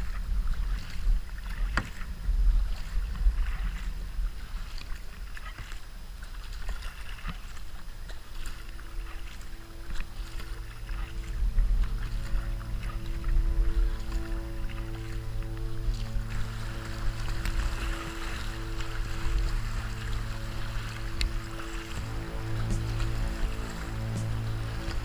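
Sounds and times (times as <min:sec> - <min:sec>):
kayak paddle splashing in water: 0:00.0 - 0:25.0
wind rumble on microphone: 0:00.0 - 0:25.0
instrumental music with held chords: 0:09.0 - 0:25.0.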